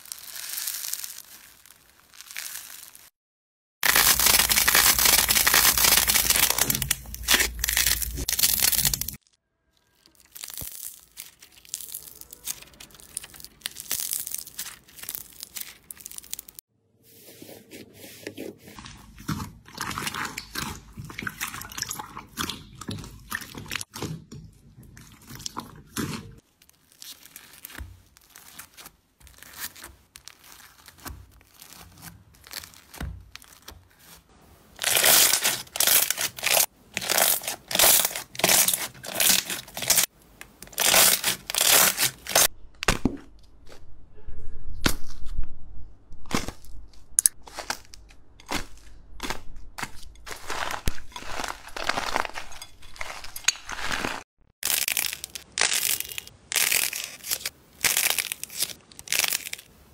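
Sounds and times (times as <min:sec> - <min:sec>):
plastic film crinkling: 0:00.0 - 0:03.1, 0:03.8 - 0:16.6, 0:26.4 - 0:42.5, 0:50.1 - 0:59.7
spoon stirring foam beads: 0:00.0 - 0:03.1, 0:03.8 - 0:42.5, 0:47.5 - 0:59.7.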